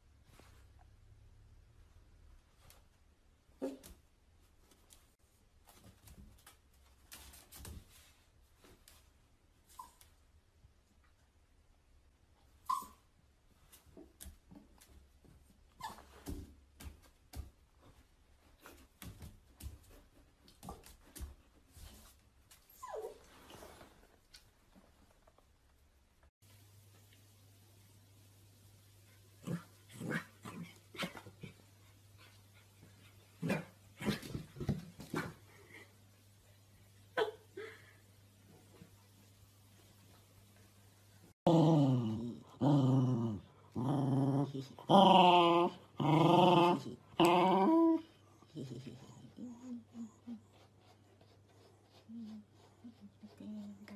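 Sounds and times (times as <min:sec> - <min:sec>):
puppy whimper: 0:12.7 - 0:13.0, 0:22.7 - 0:23.3
paws tapping on tile floor: 0:13.7 - 0:22.8
dog growling: 0:41.5 - 0:49.6.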